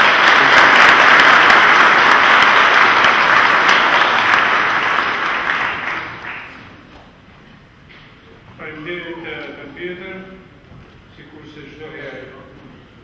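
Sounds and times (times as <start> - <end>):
crowd applauding: 0.0 - 6.8.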